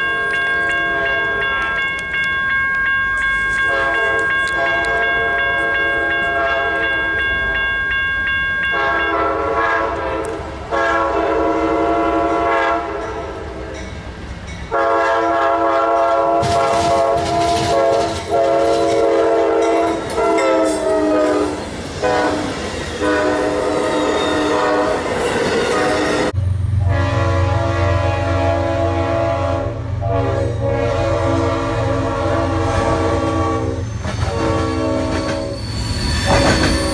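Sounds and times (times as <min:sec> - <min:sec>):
locomotive air horn chords: 0:03.7 - 0:07.0, 0:08.7 - 0:13.4, 0:14.7 - 0:35.6.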